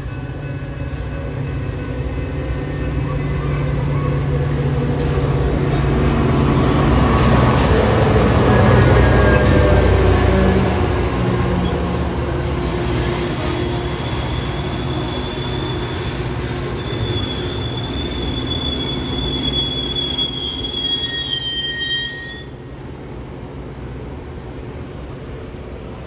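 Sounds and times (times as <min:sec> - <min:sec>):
diesel locomotive engine rumble: 0:00.0 - 0:26.0
train wheels squealing: 0:02.8 - 0:12.0, 0:12.6 - 0:22.7.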